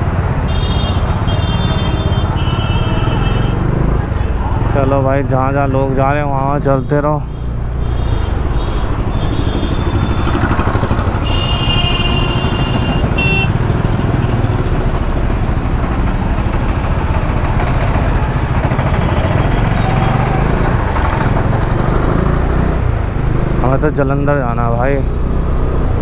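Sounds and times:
street traffic rumble: 0.0s - 26.0s
vehicle horns honking: 0.4s - 3.7s, 6.7s - 10.5s, 11.1s - 14.6s.

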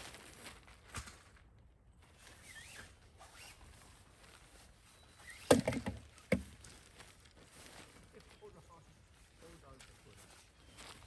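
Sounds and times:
tent poles clattering: 5.2s - 7.0s.

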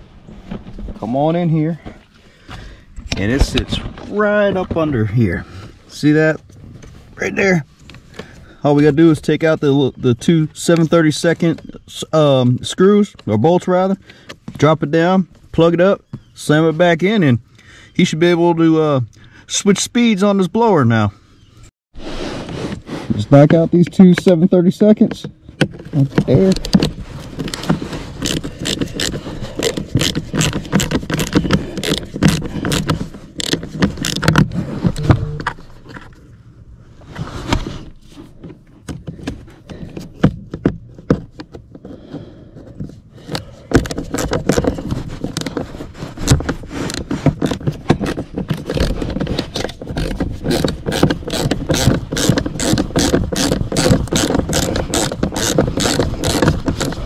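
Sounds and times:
hand ratchet clicking: 50.0s - 57.0s.

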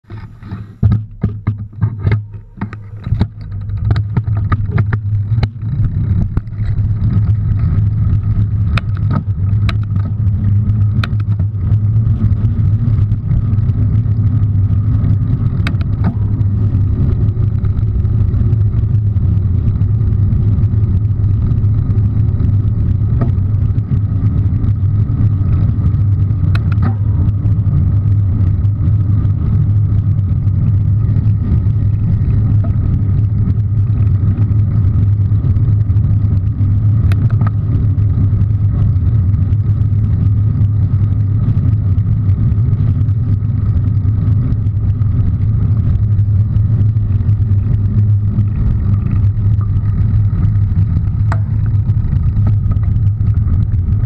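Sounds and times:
bicycle knocks and rattles: 0.0s - 39.6s, 46.4s - 54.0s
wind and tyres on pavement: 0.0s - 54.0s
bicycle bump knock: 0.4s - 6.7s.

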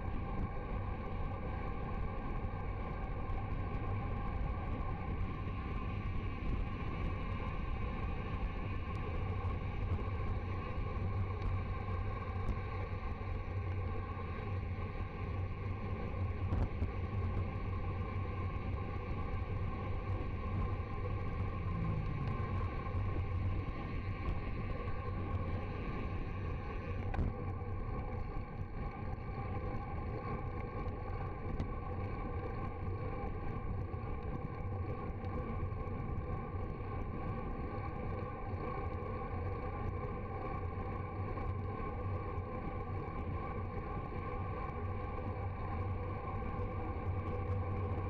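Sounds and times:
wind and road rumble: 15.9s - 28.6s.

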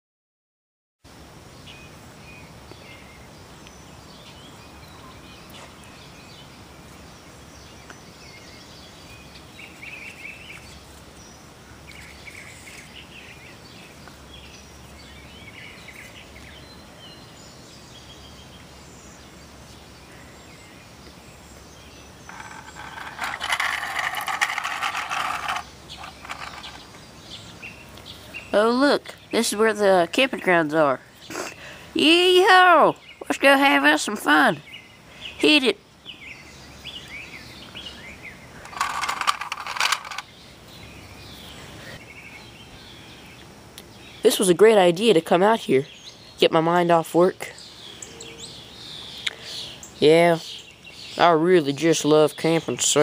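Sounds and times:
faint bird chirps: 1.6s - 29.6s.

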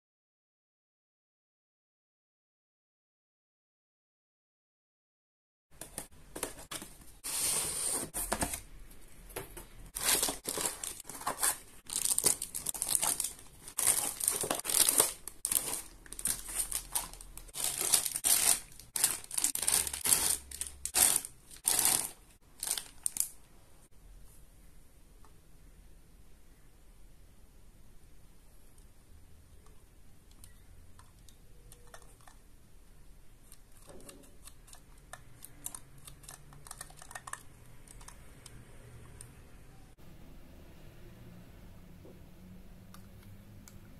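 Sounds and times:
cardboard packaging handled: 6.3s - 8.7s, 9.4s - 23.2s
plastic bags crinkling and tearing: 9.9s - 23.4s.

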